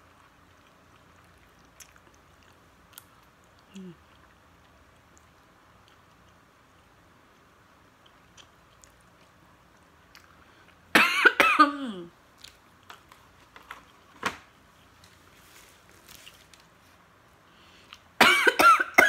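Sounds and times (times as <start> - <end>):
woman coughing: 11.0 - 12.1, 18.2 - 19.0.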